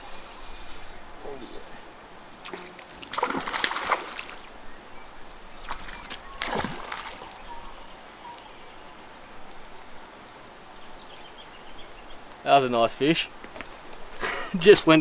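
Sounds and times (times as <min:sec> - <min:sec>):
fish splashing in water: 0:02.4 - 0:07.8
faint bird calls: 0:04.4 - 0:10.0.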